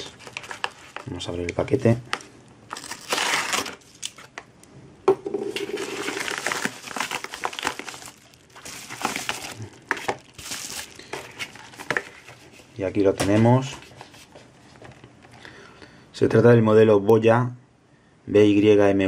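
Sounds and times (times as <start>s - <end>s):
padded mailer crinkling and rustling: 0.0s - 4.4s, 5.7s - 15.0s.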